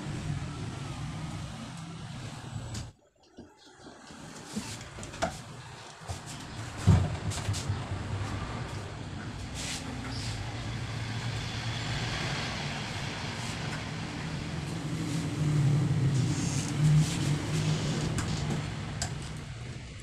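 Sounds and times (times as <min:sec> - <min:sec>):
vehicle engine running: 0:07.4 - 0:20.0.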